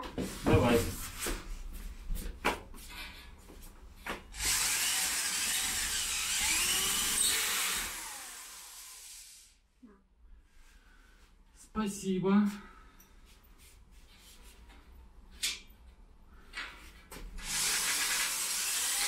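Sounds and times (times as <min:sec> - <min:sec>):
electric drill driving screw: 0:04.3 - 0:09.5, 0:17.4 - 0:19.0.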